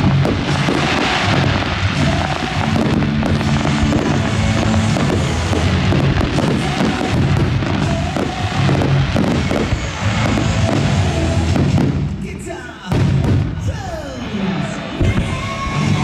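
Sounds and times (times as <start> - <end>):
fireworks bursting and crackling: 0.0 - 16.0
loud music: 0.0 - 16.0.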